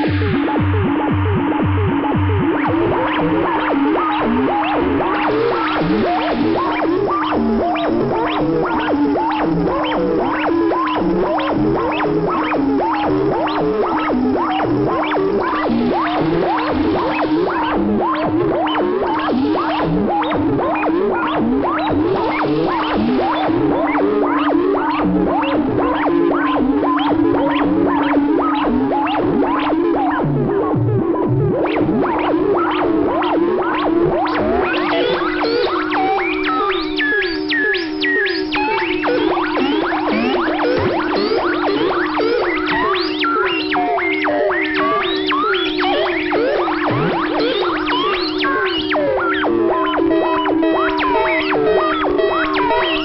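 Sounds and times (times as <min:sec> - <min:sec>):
low synthesizer drone: 0:00.0 - 0:29.8
rising synth chirps: 0:34.3 - 0:53.0.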